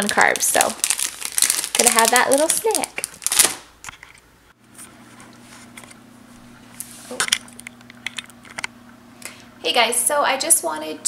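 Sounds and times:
plastic wrapper crinkling: 0.0s - 4.2s
low steady hum: 0.0s - 11.0s.

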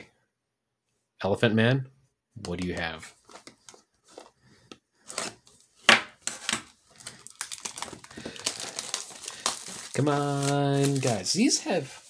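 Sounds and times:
cards and packaging handled: 2.4s - 12.0s
plastic wrapper crinkling: 5.0s - 12.0s.

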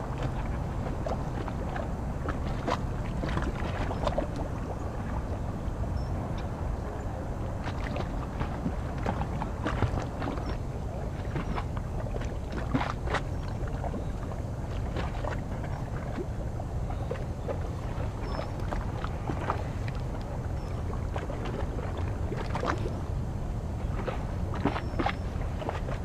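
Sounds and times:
water lapping at shore: 0.0s - 26.0s.

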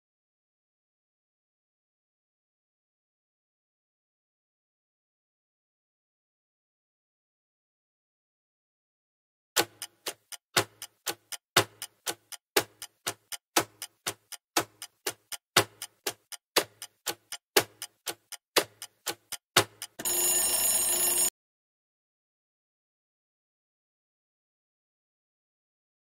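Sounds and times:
clock ticking: 9.6s - 21.3s
ringing alarm: 20.0s - 21.3s.

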